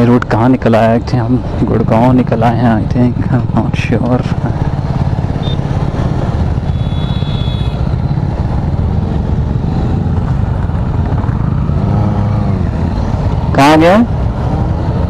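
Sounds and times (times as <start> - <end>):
motorcycle engines idling: 1.0 - 15.0
engine revving: 11.2 - 15.0.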